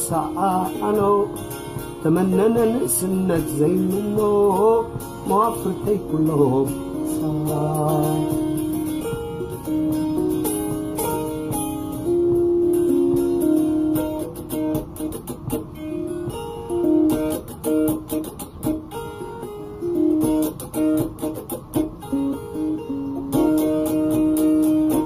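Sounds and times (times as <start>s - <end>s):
plucked string instrument melody: 0.0s - 25.0s.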